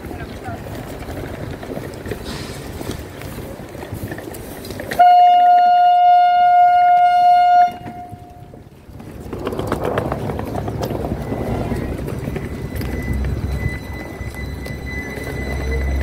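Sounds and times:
train running noise: 0.0s - 16.0s
train horn blast: 4.9s - 8.6s.

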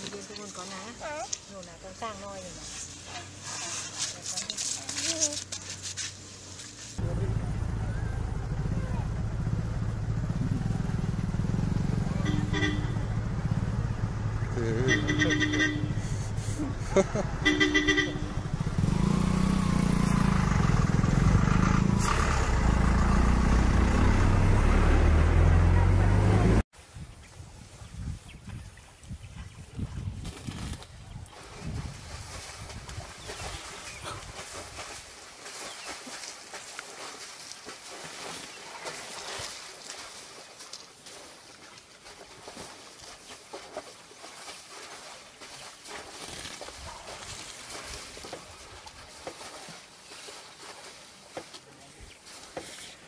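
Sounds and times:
engine idling rumble: 7.0s - 26.6s
faint splashes in muddy water: 27.3s - 53.0s.

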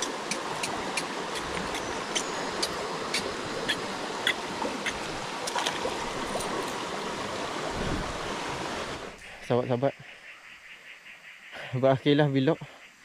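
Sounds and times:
stream flowing: 0.0s - 9.8s.

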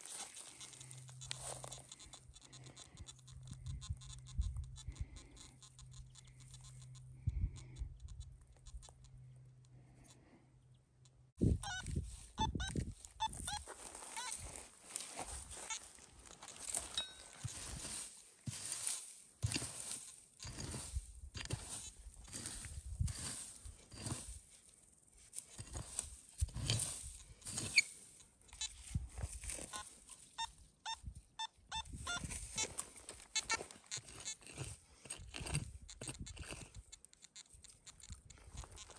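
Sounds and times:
metal detector short beeps: 0.0s - 9.3s, 11.4s - 15.9s, 16.5s - 24.3s, 25.5s - 34.7s
farm animals calling: 0.0s - 19.0s, 31.5s - 34.8s, 35.9s - 38.9s.

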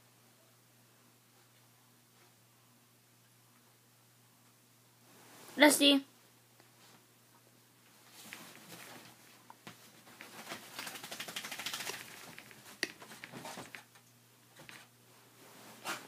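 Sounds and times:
bedding rustling: 7.9s - 16.0s
dog paws scratching bedding: 15.5s - 16.0s.

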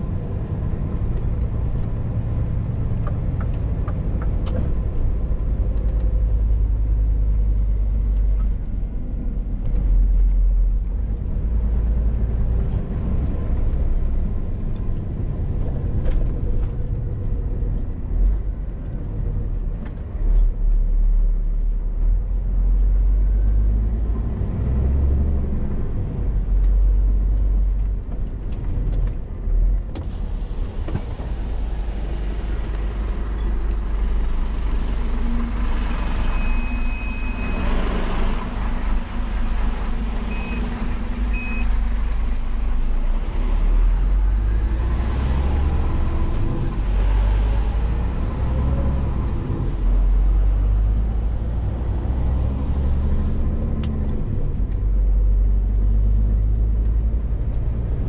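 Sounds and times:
lorry diesel engine rumble: 0.0s - 58.0s
road noise: 0.0s - 58.0s
high beeps: 35.9s - 38.0s, 40.2s - 41.8s.

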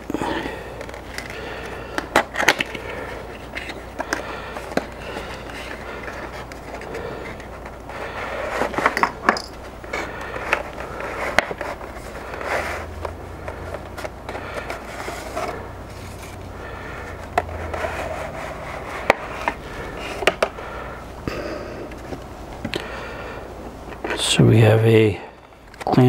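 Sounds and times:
plastic and cardboard scraping: 0.2s - 20.7s.

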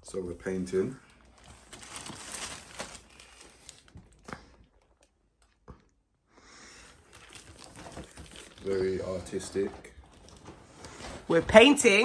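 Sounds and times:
packaging rustling: 1.0s - 5.6s, 6.8s - 11.3s.

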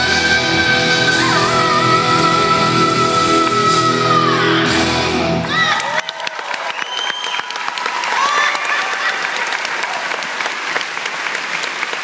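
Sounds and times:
high cheers: 5.4s - 10.7s
audience applauding: 5.4s - 12.0s.

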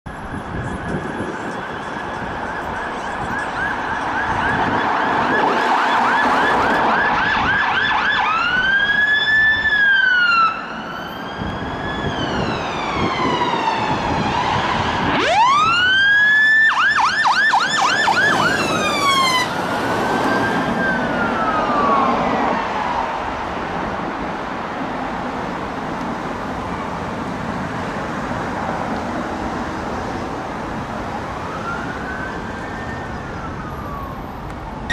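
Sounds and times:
engine and tyre noise: 0.0s - 34.9s
fire engine sirens: 0.1s - 34.9s.

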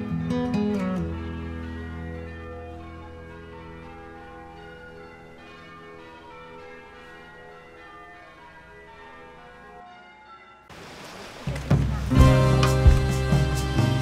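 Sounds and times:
bells ringing: 0.0s - 10.7s.

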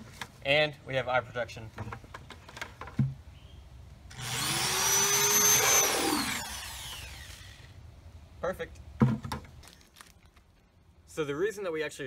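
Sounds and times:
power drill boring into plastic: 4.1s - 7.7s.

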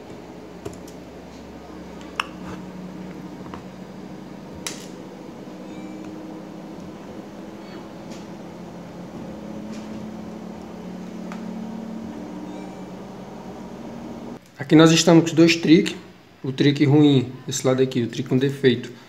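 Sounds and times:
small motor humming: 1.2s - 14.4s.

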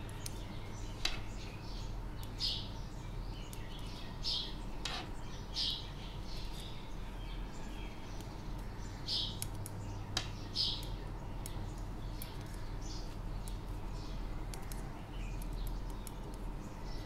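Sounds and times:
electrical hum: 0.0s - 17.0s
knitting needles scraping: 4.8s - 5.1s.

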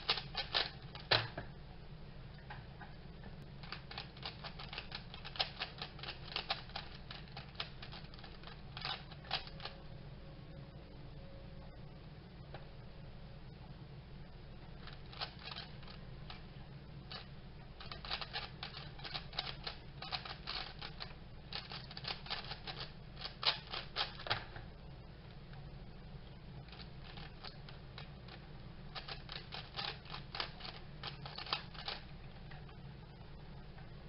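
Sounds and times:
plastic puzzle cube clicking: 0.0s - 1.3s, 3.6s - 9.8s, 14.8s - 16.4s, 17.1s - 24.4s, 26.7s - 28.1s, 28.9s - 32.1s
steady low hum: 0.0s - 34.0s.

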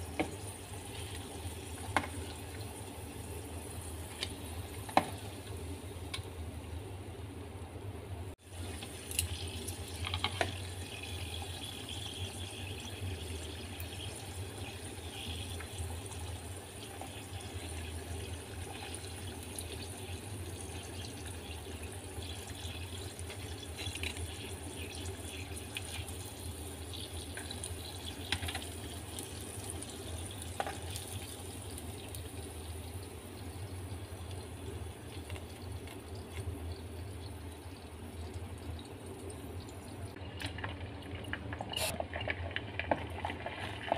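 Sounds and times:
food sizzling in hot oil: 8.4s - 37.4s, 41.8s - 42.0s.

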